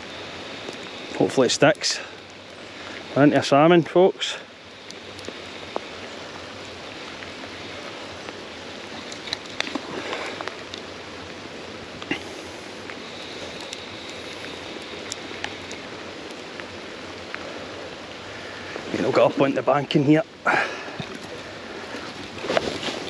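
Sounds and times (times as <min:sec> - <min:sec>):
river water running: 0:00.0 - 0:23.0.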